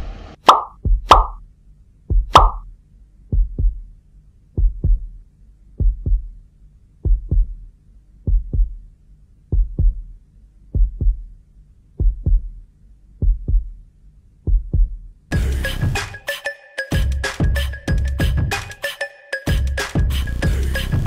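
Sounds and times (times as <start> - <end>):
heartbeat thumps: 0.7 - 1.4, 2.0 - 6.4, 7.0 - 12.6, 13.2 - 13.8, 14.4 - 15.6.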